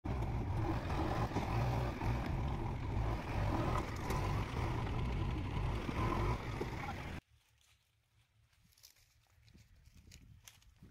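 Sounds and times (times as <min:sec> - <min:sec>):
diesel engine droning: 0:00.0 - 0:07.2.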